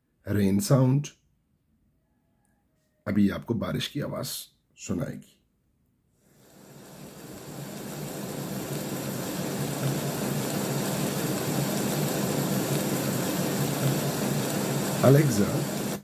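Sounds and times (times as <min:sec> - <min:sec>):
rain hiss from speaker: 0:06.3 - 0:16.0.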